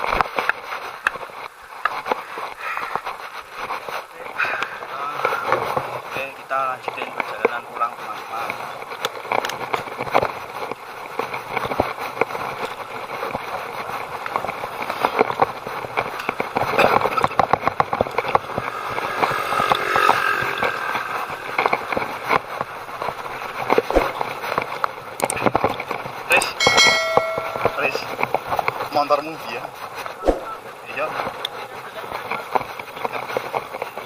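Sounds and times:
bicycle rattling over bumps: 0:00.0 - 0:34.0
rushing tyres and air: 0:08.5 - 0:26.3.

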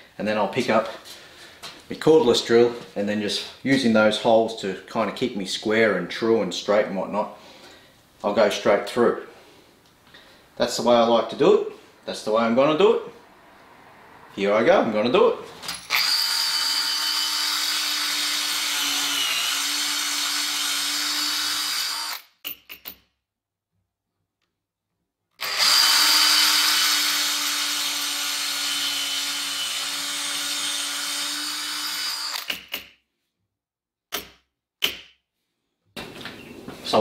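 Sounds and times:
cordless drill whining into wood: 0:15.7 - 0:22.3, 0:25.4 - 0:32.6.

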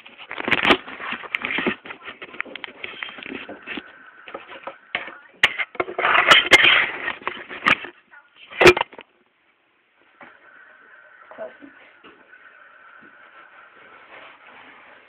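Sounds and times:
phone handling rustling and scraping: 0:00.0 - 0:04.7.

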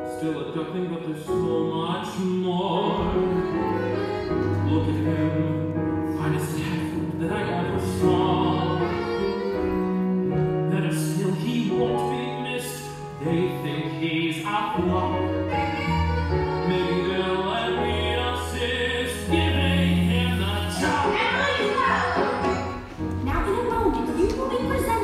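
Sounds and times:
theatrical song with held notes: 0:00.0 - 0:25.0.

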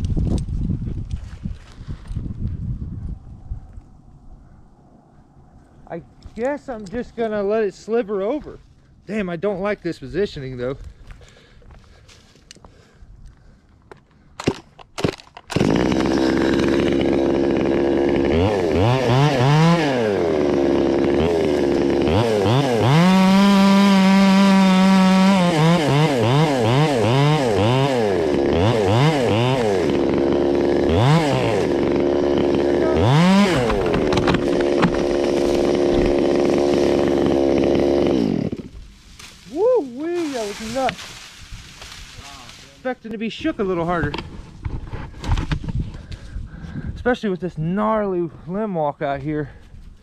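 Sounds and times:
chainsaw idling and revving: 0:15.5 - 0:42.1.

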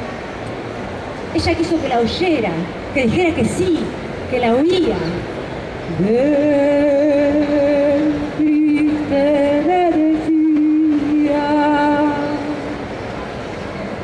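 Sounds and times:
woman singing a long note: 0:05.9 - 0:12.8.

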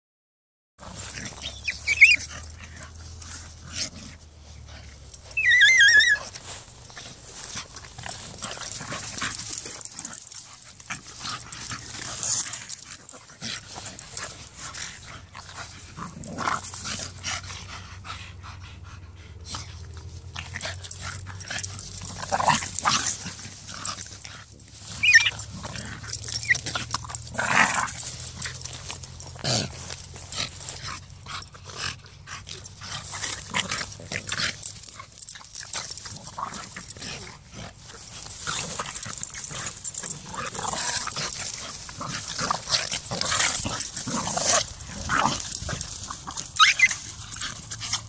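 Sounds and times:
dogs scuffling on grass: 0:00.8 - 0:18.0, 0:19.4 - 0:48.0
dog yelping: 0:01.3 - 0:02.6, 0:05.2 - 0:06.4, 0:24.9 - 0:27.9, 0:46.4 - 0:47.4.

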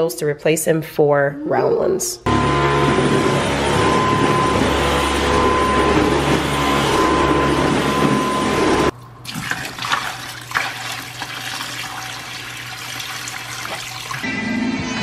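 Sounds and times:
stick vacuum whining: 0:02.3 - 0:08.9
faucet water running into sink: 0:09.2 - 0:14.2.

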